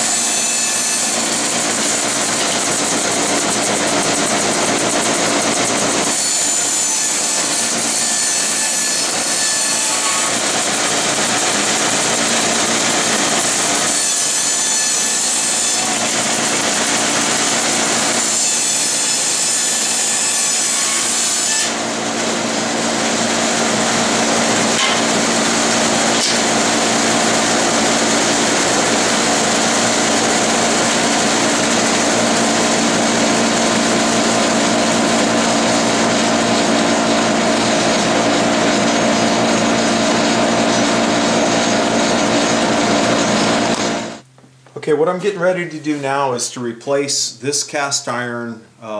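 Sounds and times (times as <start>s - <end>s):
bandsaw ripping wood: 0.0s - 22.9s, 23.6s - 34.5s
dust collector running: 0.0s - 44.2s.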